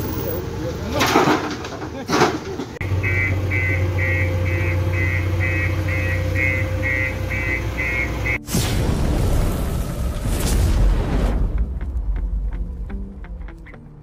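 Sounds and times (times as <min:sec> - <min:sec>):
diesel engine running: 0:00.0 - 0:08.4
reversing alarm beeping: 0:02.8 - 0:08.4.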